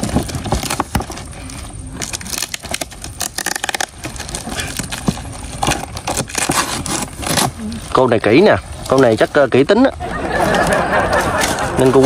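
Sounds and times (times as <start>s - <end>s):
packing tape tearing: 0.0s - 9.6s
box and wrapping rustling: 0.0s - 12.0s.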